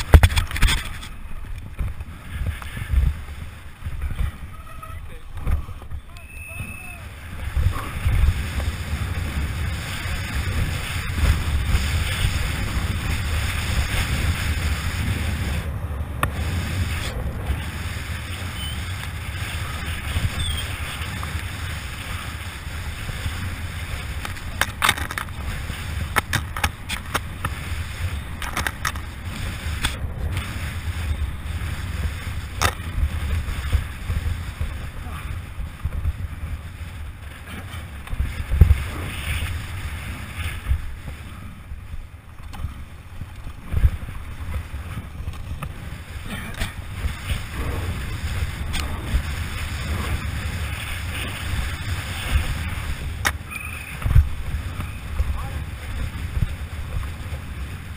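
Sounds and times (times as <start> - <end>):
bike tyres on dirt: 0.0 - 57.9
wind rumble on microphone: 0.0 - 57.9.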